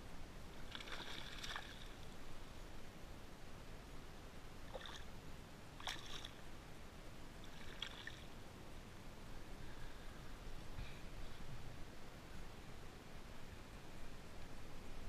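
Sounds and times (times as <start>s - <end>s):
fish splashing in water: 0.7s - 2.0s, 5.8s - 6.4s, 7.5s - 8.2s.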